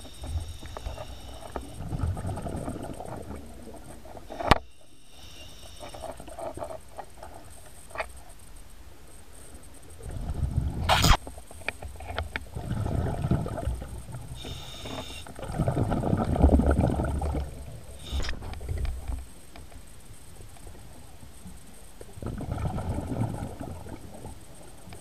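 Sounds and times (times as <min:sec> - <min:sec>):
regulator hiss: 0:00.0 - 0:02.0, 0:04.2 - 0:06.6, 0:13.8 - 0:15.4, 0:17.6 - 0:22.0
exhaled bubbles rumbling underwater: 0:01.5 - 0:04.3, 0:10.0 - 0:11.0, 0:12.4 - 0:19.2, 0:22.1 - 0:24.6.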